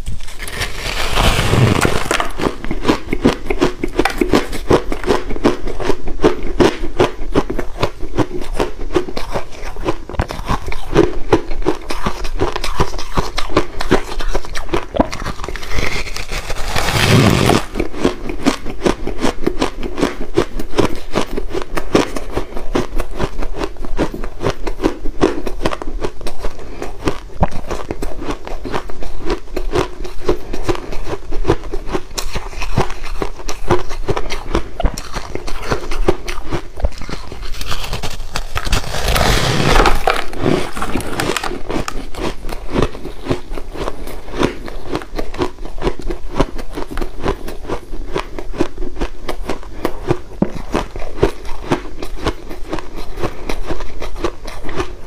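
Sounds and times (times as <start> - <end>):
chewing crunchy ice: 0.2 - 55.0.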